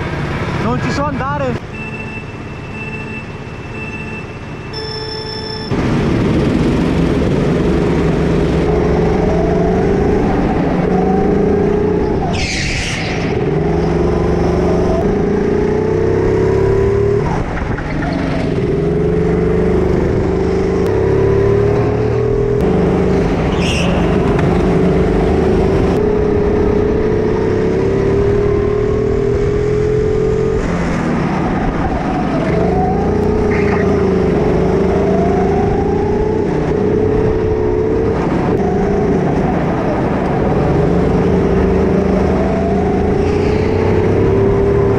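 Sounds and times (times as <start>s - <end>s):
go-kart engine racing: 5.7s - 44.9s
short high squeal: 12.3s - 13.4s.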